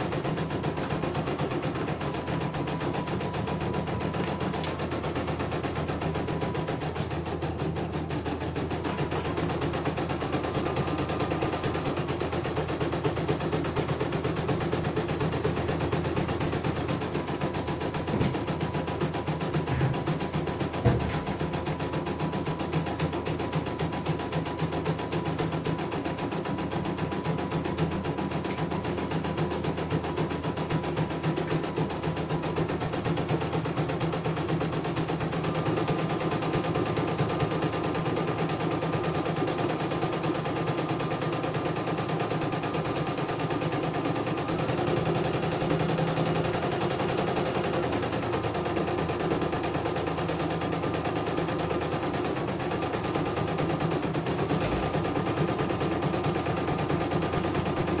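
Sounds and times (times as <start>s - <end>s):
embroidery machine clattering: 16.3s - 22.5s.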